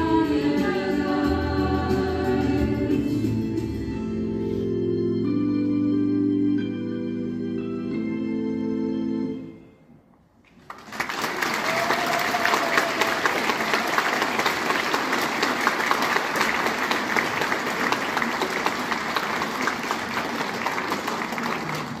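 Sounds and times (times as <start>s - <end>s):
audience applauding: 10.5s - 22.0s.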